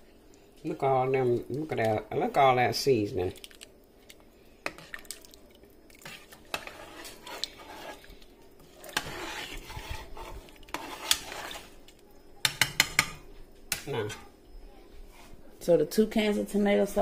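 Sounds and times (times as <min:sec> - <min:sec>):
metal spoon scraping a pot: 0:05.9 - 0:11.8
spoon clinking on a pot: 0:12.4 - 0:13.9.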